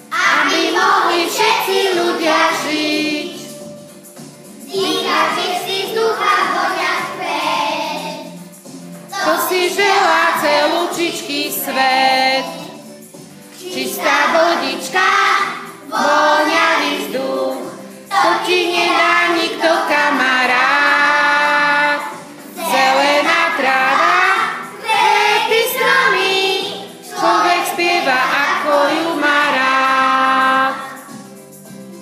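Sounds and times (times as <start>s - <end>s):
children singing in unison: 0.0s - 3.7s, 4.6s - 8.5s, 9.1s - 31.3s.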